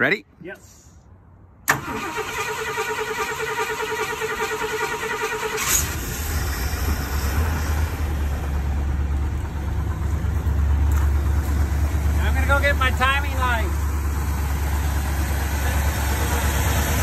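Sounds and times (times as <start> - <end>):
starter cranking engine: 1.7 - 7.0
truck engine running: 5.6 - 17.0.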